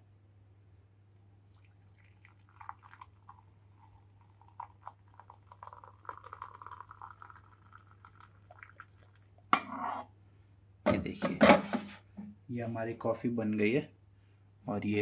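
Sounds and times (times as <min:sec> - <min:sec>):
water trickling into mug: 0:01.4 - 0:09.6.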